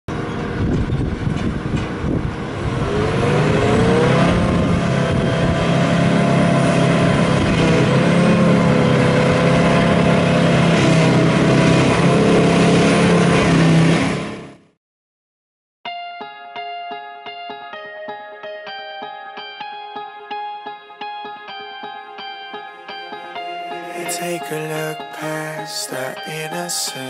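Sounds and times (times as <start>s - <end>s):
forage harvester engine and chopping: 4.2s - 14.4s.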